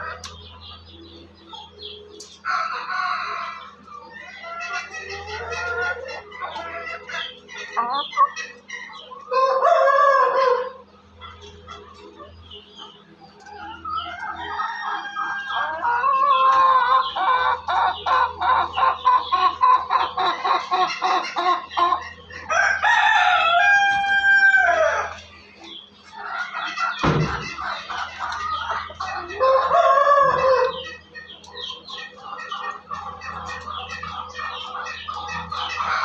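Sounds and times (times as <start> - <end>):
chickens clucking: 0.0 - 36.0
rooster crowing: 22.5 - 25.1, 29.3 - 30.8.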